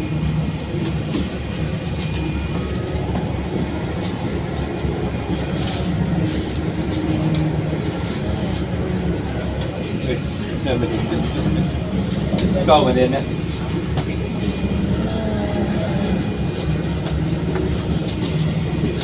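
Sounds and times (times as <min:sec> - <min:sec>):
bus engine rumble: 0:00.0 - 0:19.0.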